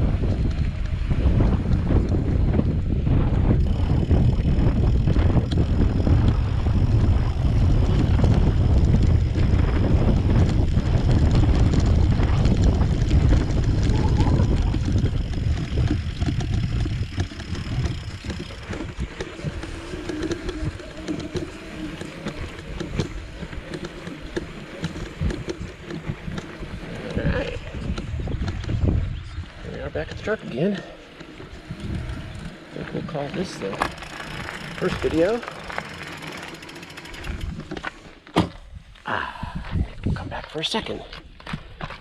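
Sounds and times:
heavy low rumble: 0.0 - 20.8
wind buffeting microphone: 0.0 - 42.0.

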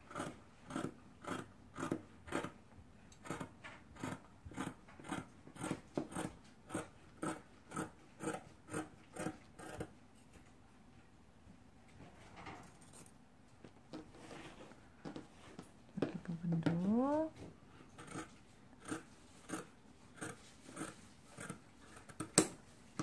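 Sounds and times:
scissors snipping fabric: 0.1 - 9.9, 18.0 - 22.6.

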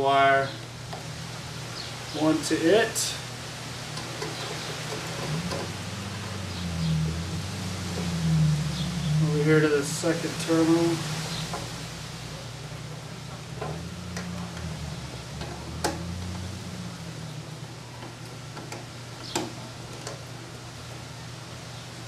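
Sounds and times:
low hum: 0.0 - 19.1.

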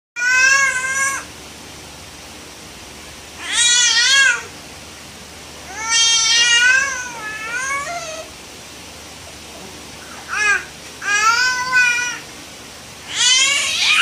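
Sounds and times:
infant crying: 10.1 - 12.2.

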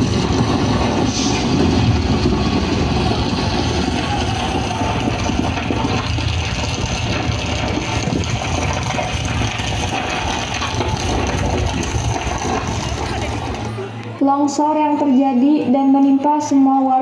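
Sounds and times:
landslide rumble over loudspeakers: 0.0 - 17.0.

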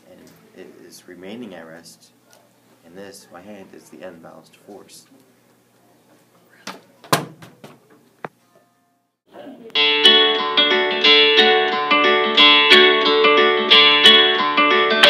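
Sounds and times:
picked guitar music: 9.7 - 15.0.

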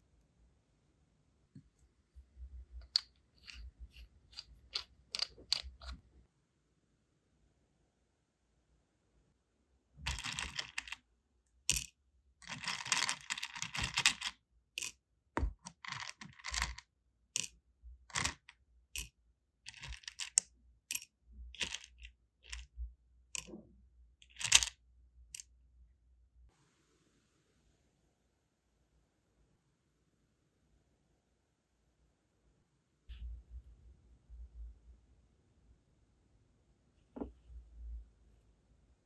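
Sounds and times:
wax beads clicking and rattling: 10.1 - 11.0, 11.7 - 14.9, 15.6 - 16.8, 19.7 - 21.0, 21.6 - 22.6.

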